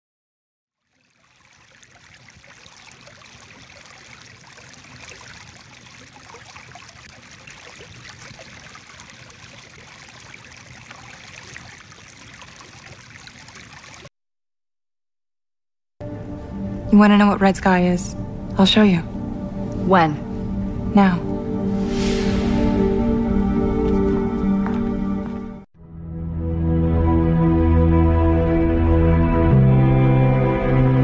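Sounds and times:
babbling stream: 0.8 - 14.1.

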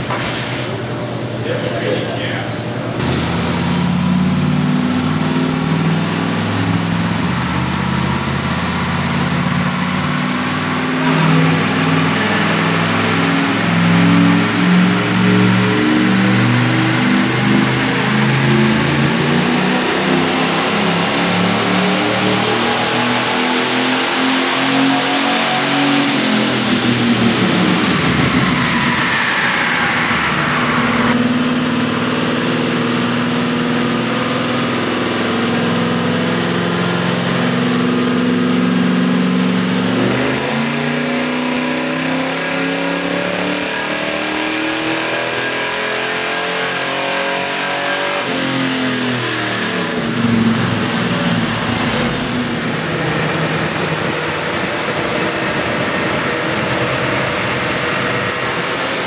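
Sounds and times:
car engine full-throttle pull: 3.0 - 59.0
car engine coasting down: 47.4 - 59.0.

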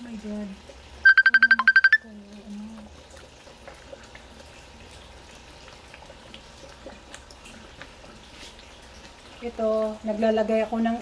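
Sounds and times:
sauce bubbling with soft pops: 2.4 - 9.4.

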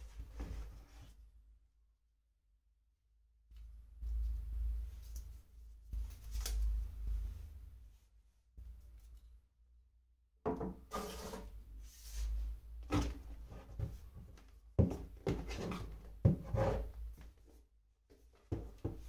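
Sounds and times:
objects rubbing and sliding on desk: 10.9 - 12.5.

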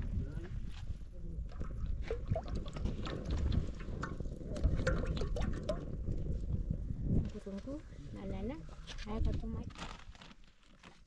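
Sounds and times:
oil pouring into metal pot: 1.5 - 6.5.

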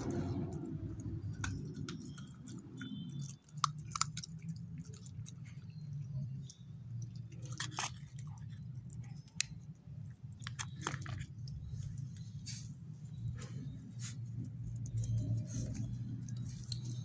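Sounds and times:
dog chewing bone: 0.0 - 9.7
steady low hum: 0.0 - 17.0.

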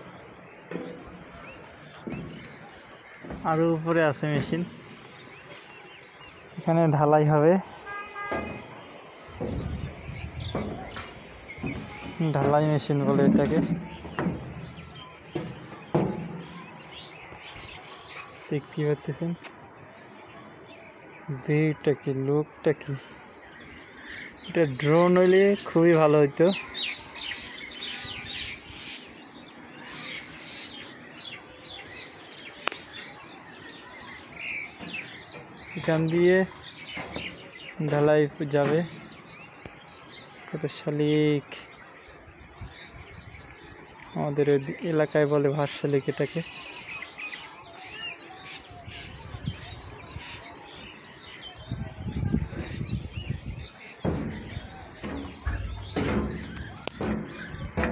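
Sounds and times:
birds chirping and chattering: 0.0 - 57.9
sharp knocks: 2.0 - 2.6, 3.2 - 3.6, 8.2 - 16.7, 54.0 - 57.9.

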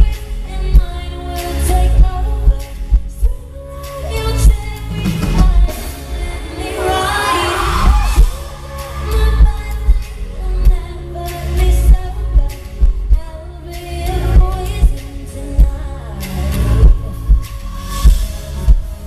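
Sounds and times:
woman singing: 0.0 - 19.0
heavy bass beat: 7.7 - 19.0.

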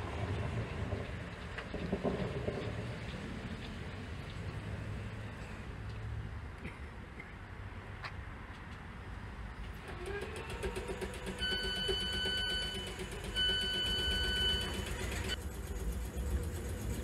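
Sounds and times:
train electrical hum: 8.9 - 17.0
long electronic beeps: 11.4 - 15.4.

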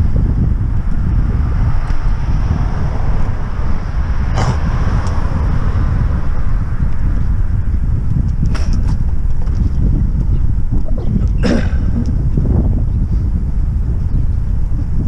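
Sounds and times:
wind buffeting microphone: 0.0 - 15.0
car passing: 1.1 - 7.6.

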